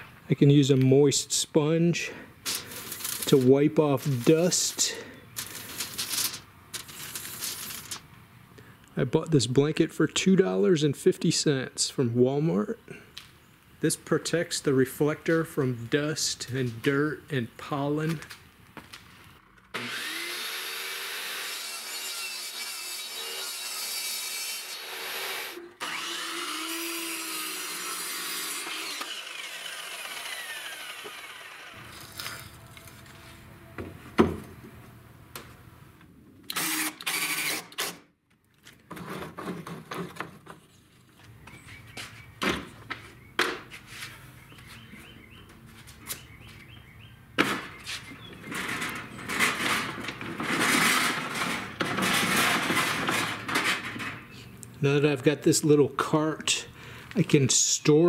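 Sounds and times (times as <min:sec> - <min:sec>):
power drill: 0:19.7 - 0:32.6, 0:36.5 - 0:38.0
table saw cutting plywood: 0:19.7 - 0:33.1, 0:36.6 - 0:38.0, 0:48.5 - 0:53.8.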